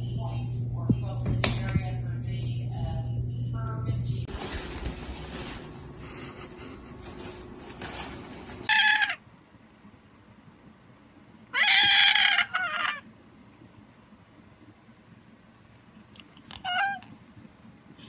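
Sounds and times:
cat meowing: 0:11.5 - 0:13.0, 0:16.5 - 0:17.1.

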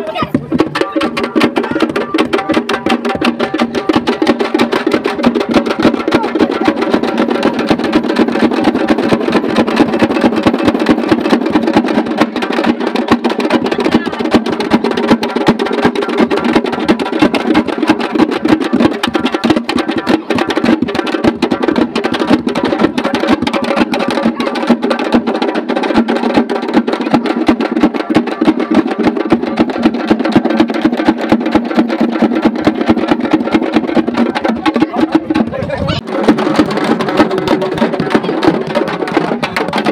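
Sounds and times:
frame drums beaten fast: 0:00.0 - 0:39.9
crowd voices: 0:16.3 - 0:25.6, 0:33.2 - 0:39.9.

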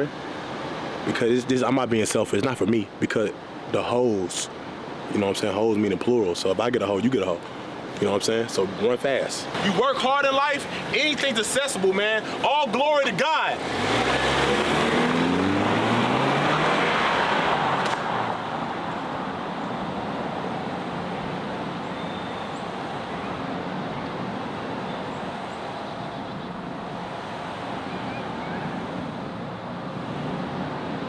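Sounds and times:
car accelerating away: 0:13.6 - 0:19.3.

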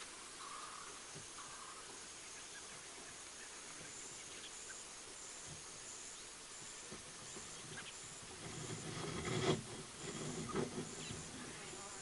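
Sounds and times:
faint bird chirps: 0:00.0 - 0:08.9, 0:10.2 - 0:12.0
crickets chirping: 0:00.0 - 0:12.0
rustling: 0:06.6 - 0:12.0.

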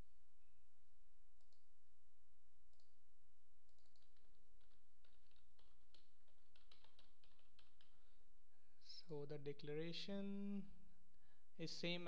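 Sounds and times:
typing on computer keyboard: 0:03.6 - 0:08.0.

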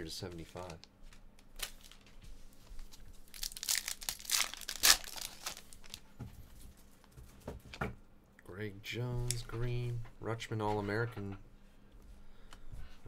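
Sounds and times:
foil wrapper tearing and crinkling: 0:01.6 - 0:02.1, 0:03.2 - 0:06.0.

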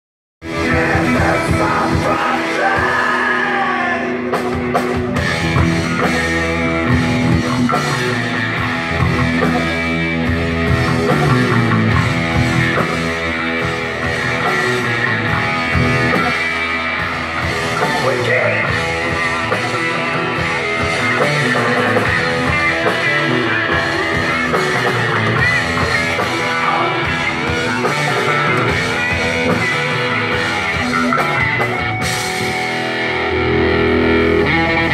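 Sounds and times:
live rock band playing: 0:00.4 - 0:34.9
person singing into a microphone: 0:00.5 - 0:04.3.

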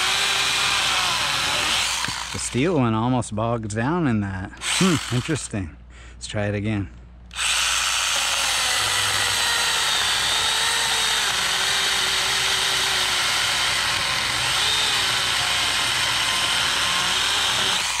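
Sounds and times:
chainsaw cutting through log: 0:00.0 - 0:02.6, 0:04.6 - 0:05.4, 0:07.3 - 0:18.0.

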